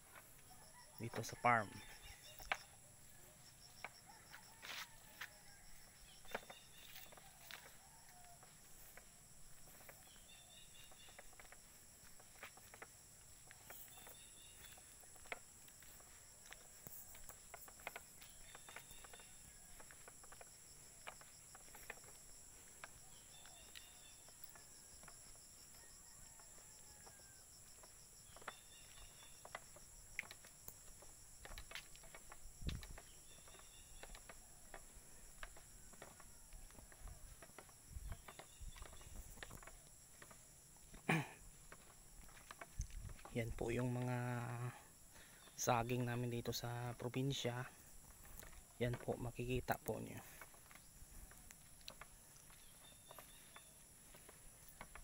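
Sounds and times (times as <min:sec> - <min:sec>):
insects chirring: 0:00.0 - 0:55.0
footsteps and handling clicks: 0:01.0 - 0:02.8, 0:03.8 - 0:44.8, 0:45.4 - 0:55.0.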